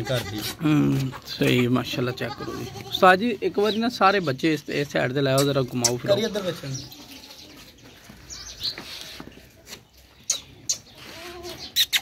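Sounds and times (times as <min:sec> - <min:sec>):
goat kid calling: 0:00.0 - 0:03.8, 0:05.3 - 0:07.8, 0:08.7 - 0:12.0
goats scuffling on a yard: 0:00.0 - 0:11.8.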